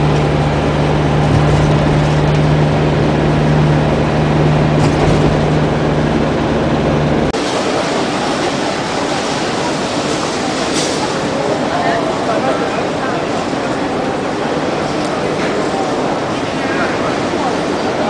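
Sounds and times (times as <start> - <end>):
low hum: 0.0 - 7.4
bus engine drone: 0.0 - 18.0
busy street noise: 0.0 - 18.0.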